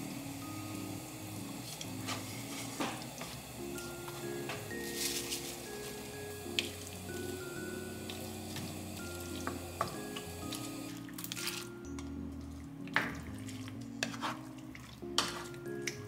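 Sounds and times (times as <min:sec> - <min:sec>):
soft background music: 0:00.0 - 0:16.0
wooden spoon stirring sauce: 0:11.9 - 0:16.0
sharp scrapes and knocks: 0:14.0 - 0:14.5.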